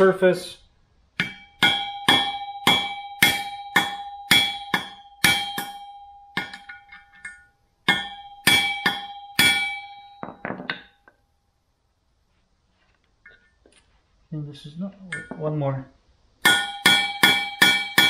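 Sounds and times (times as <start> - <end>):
hammer tapping on metal: 1.2 - 11.2, 16.4 - 18.0.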